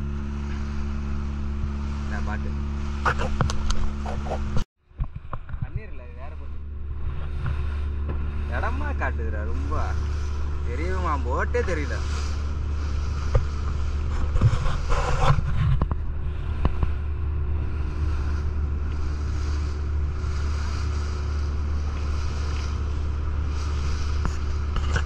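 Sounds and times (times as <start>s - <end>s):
boat engine humming: 0.0s - 25.0s
water rushing along hull: 0.0s - 25.0s
wind on microphone: 2.7s - 8.6s, 11.8s - 25.0s.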